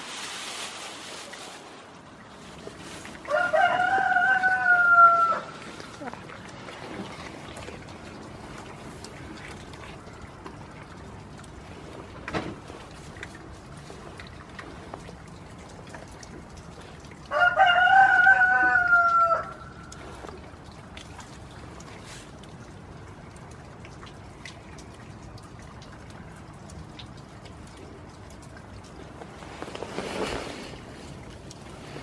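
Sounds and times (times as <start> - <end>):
short rustle: 0.0 - 3.2, 29.1 - 32.0
rain ticking: 1.3 - 32.0
rooster crowing: 3.3 - 5.6, 17.3 - 19.7.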